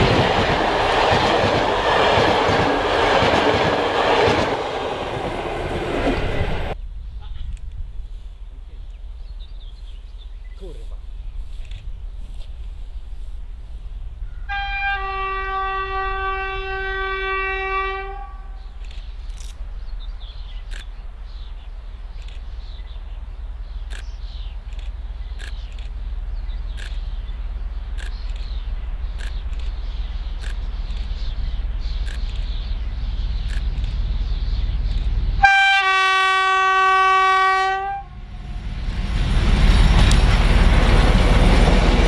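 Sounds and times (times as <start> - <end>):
locomotive two-tone horn: 14.5 - 18.6, 35.4 - 38.3
faint clicks: 20.7 - 20.9, 22.2 - 22.5, 23.8 - 26.0, 26.7 - 27.0, 27.9 - 29.8, 30.4 - 31.1, 32.0 - 32.5.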